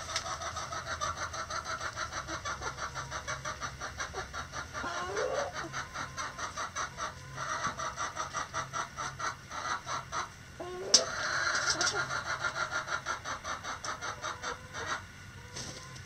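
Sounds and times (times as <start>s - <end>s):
hen call: 2.2s - 9.2s.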